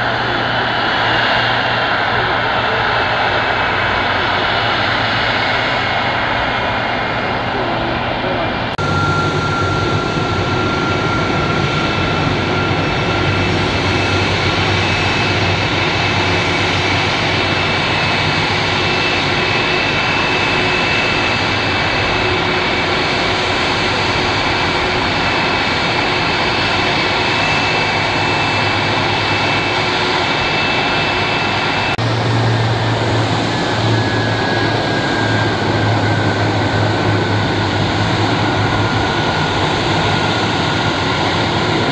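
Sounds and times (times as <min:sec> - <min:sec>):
jet engine roar and whine: 0:00.0 - 0:41.9.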